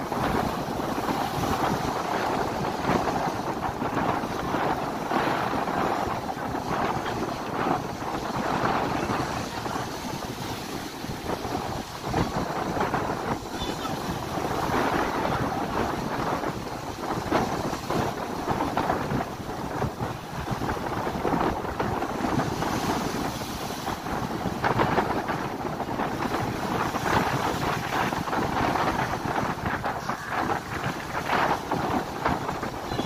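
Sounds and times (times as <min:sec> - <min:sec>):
ocean surf breaking: 0:00.0 - 0:33.0
wind buffeting microphone: 0:00.0 - 0:33.0.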